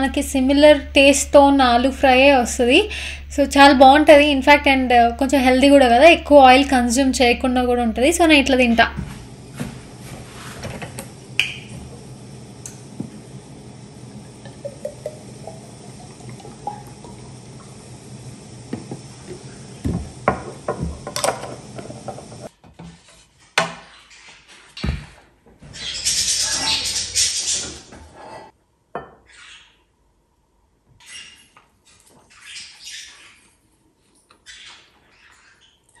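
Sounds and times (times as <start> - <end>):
steady low hum: 0.0 - 22.5
dishes clinking and knocking: 18.7 - 22.5.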